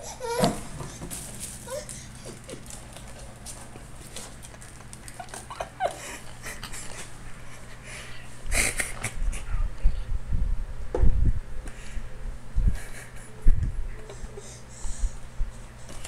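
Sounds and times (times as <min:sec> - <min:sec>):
toddler breathing: 0:01.6 - 0:02.5, 0:14.1 - 0:16.0.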